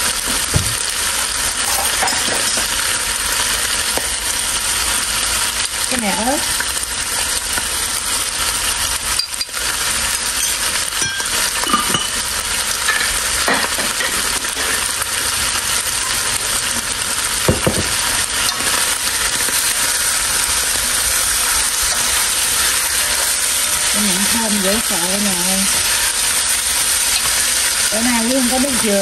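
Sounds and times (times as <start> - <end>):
meat sizzling in a pot: 0.0 - 29.0
utensils knocking on pot: 1.7 - 2.8, 10.4 - 12.2, 12.8 - 14.8, 17.5 - 18.8.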